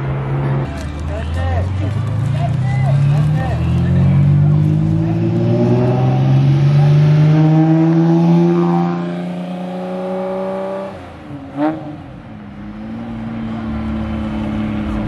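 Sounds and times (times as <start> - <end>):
sports car engine accelerating: 1.7 - 15.0.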